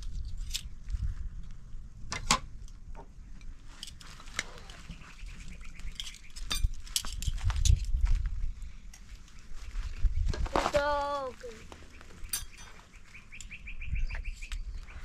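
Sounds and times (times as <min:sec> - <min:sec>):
utensils clinking on dishes: 0:12.3 - 0:12.8.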